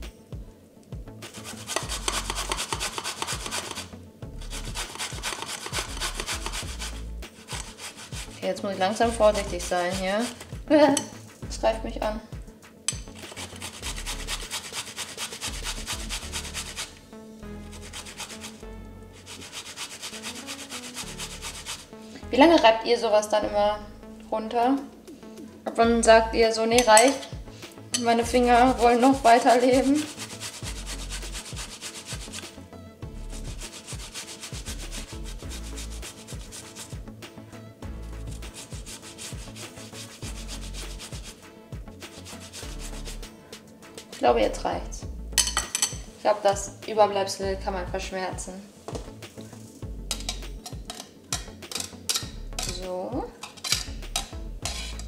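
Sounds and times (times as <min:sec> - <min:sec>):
zucchini rasping on a grater: 0:01.3 - 0:08.5, 0:09.4 - 0:10.5, 0:13.2 - 0:16.9, 0:17.7 - 0:18.6, 0:19.2 - 0:21.8, 0:29.0 - 0:32.4, 0:33.5 - 0:36.9, 0:38.4 - 0:41.4, 0:42.2 - 0:43.2.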